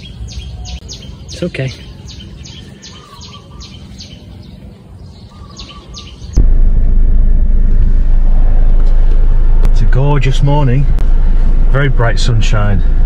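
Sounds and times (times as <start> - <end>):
bird chirping: 0.0 - 6.4
car cabin rumble: 6.4 - 13.0.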